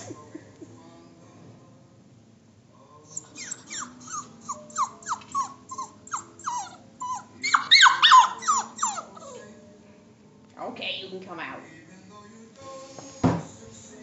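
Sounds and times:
puppy whimpering: 0.0 - 0.8, 3.1 - 9.6.

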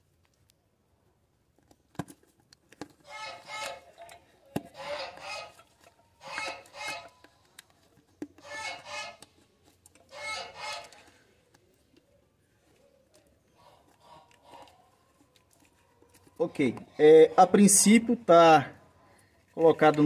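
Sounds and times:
rubber boot squeaking and rubbing: 3.0 - 3.9, 4.7 - 7.2, 8.4 - 9.4, 10.0 - 11.1.

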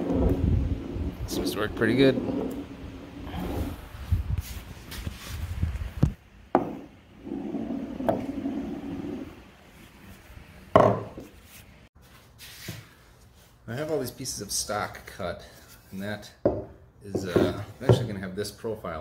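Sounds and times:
ball rolling on board: 0.0 - 3.6, 6.0 - 9.4
ball knocking against wooden rail: 6.5 - 7.0, 10.8 - 11.3.

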